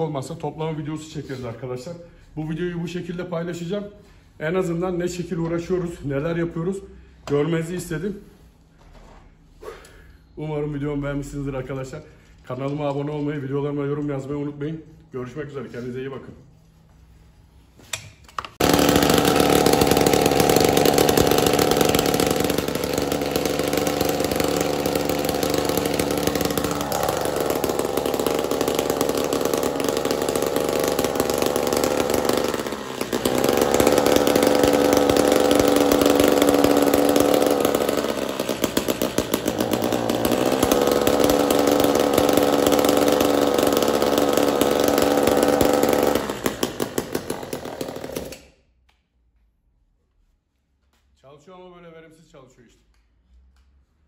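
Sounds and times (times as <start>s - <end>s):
brush cutter engine revving: 18.6s - 48.5s.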